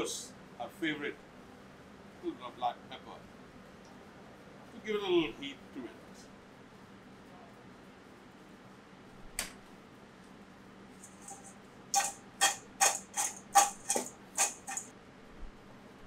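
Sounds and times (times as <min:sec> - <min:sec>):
fries clattering in a metal bowl: 0:11.0 - 0:14.9.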